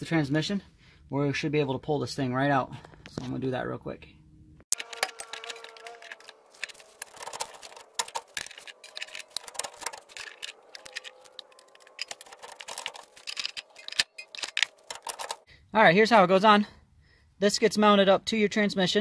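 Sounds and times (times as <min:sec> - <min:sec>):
metallic clicking and rattling of jacks: 0:04.8 - 0:15.5.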